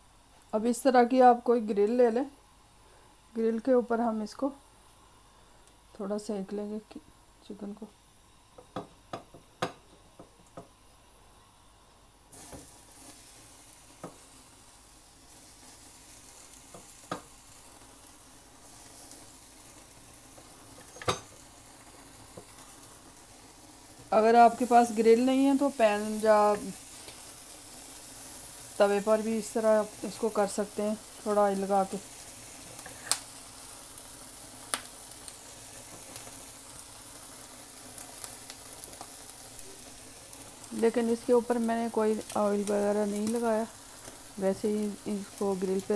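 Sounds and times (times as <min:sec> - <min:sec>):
chicken sizzling on grill: 0:11.5 - 0:45.9.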